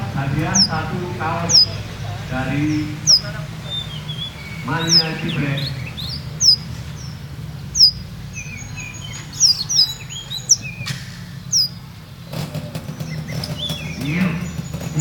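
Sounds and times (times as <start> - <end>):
bird chirping high falling notes: 0.0 - 11.8
rapid clicks: 9.1 - 15.0.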